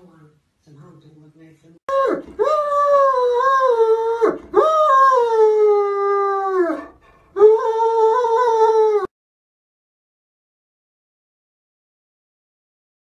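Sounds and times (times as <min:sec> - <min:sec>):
dog howling: 0:01.9 - 0:09.1.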